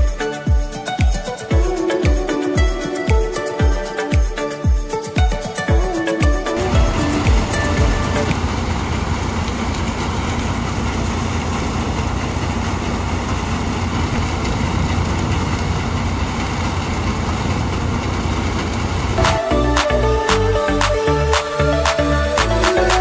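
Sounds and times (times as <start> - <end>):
tractor diesel engine drone: 6.6 - 21.4.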